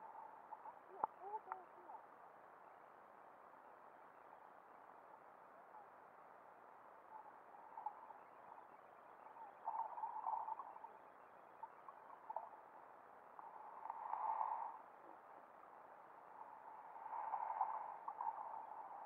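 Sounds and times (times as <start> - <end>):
muffled underwater hiss: 4.2 - 19.0.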